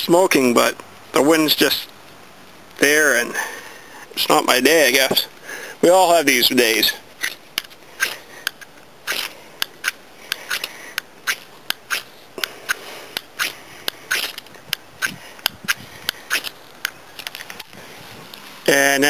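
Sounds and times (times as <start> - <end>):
striker scraping fire steel rod: 11.3 - 16.6.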